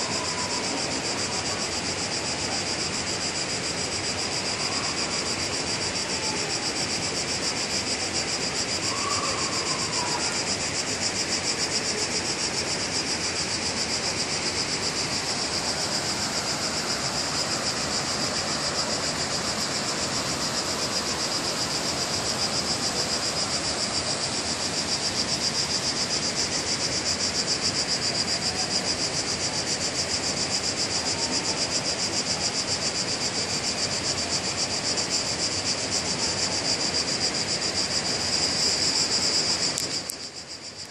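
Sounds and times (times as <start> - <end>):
cicadas droning: 0.0 - 40.9
flowing river water: 12.3 - 27.7.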